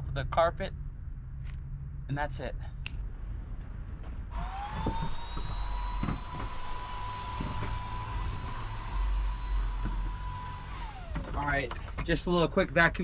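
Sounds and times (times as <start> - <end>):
stick vacuum motor whine: 4.3 - 11.9.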